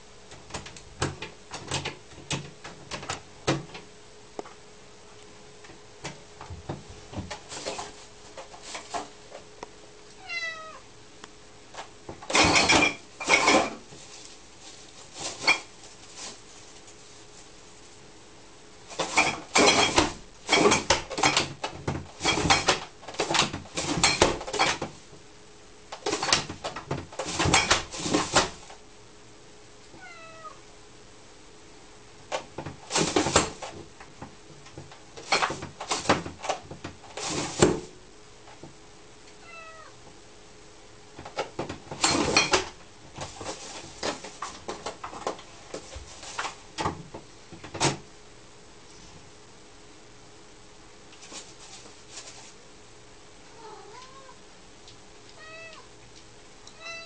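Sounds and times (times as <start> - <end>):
cat meowing: 10.2 - 10.9, 30.0 - 30.6, 39.4 - 40.0, 53.5 - 54.4, 55.4 - 55.9, 56.7 - 57.0
plastic cat flap rattling and banging: 12.1 - 13.9, 18.9 - 25.0, 26.0 - 28.7, 34.7 - 37.9.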